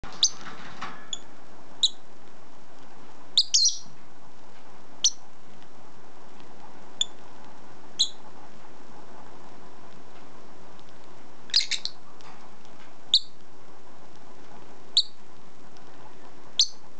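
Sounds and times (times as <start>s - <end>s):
bird high chirps: 1.8s - 2.0s, 3.4s - 3.9s, 8.0s - 8.2s, 11.5s - 12.0s, 13.1s - 13.4s, 15.0s - 15.2s, 16.6s - 16.8s.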